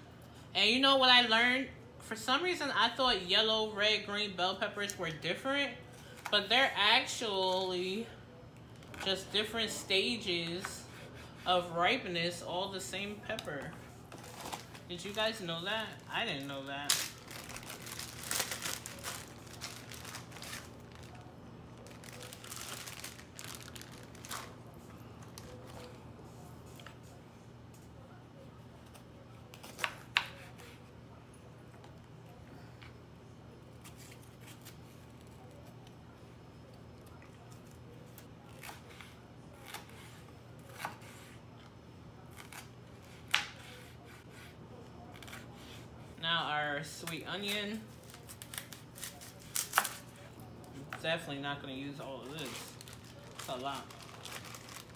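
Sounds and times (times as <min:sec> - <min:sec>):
plastic bag crinkling: 0:14.2 - 0:25.8, 0:52.3 - 0:54.9.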